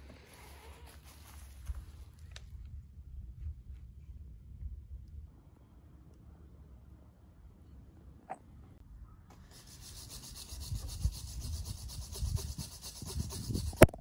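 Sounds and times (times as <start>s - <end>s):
wire brush scrubbing metal: 9.3s - 13.9s.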